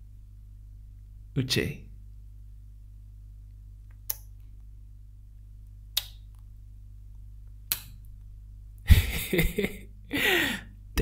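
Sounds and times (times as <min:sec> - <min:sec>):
low hum: 0:00.0 - 0:11.0
man laughing: 0:08.9 - 0:10.6.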